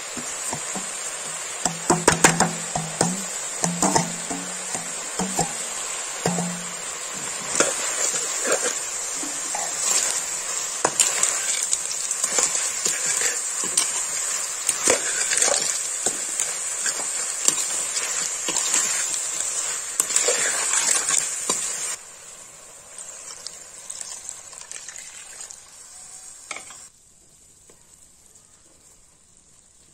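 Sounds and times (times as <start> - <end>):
food sizzling in a pan: 0.0 - 29.9
utensil scraping pan: 1.9 - 19.2.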